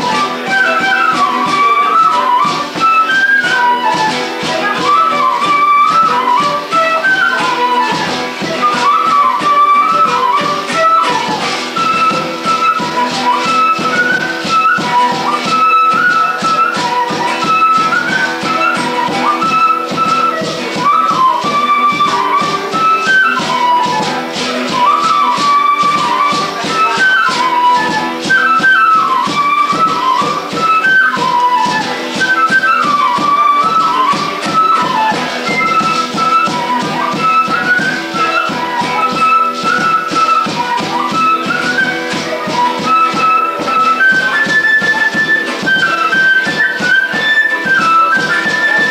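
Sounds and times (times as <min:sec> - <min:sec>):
strummed acoustic guitar: 0:00.0 - 0:37.8
flute melody: 0:00.0 - 0:48.9
hand drum beat: 0:00.0 - 0:48.9.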